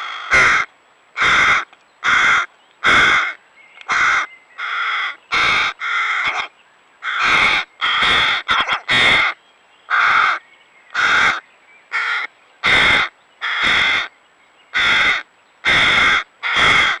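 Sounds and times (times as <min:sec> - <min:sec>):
crow fledglings begging caws: 0:00.0 - 0:17.0.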